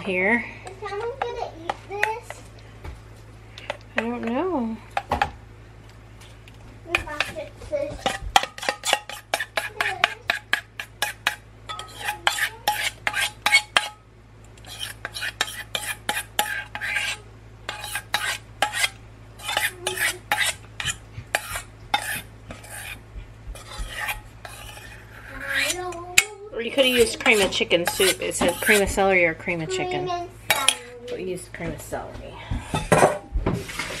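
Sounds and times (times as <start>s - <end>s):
metal spoon scraping a saucepan: 6.9s - 14.0s, 14.6s - 23.0s, 23.6s - 29.9s, 30.5s - 30.9s.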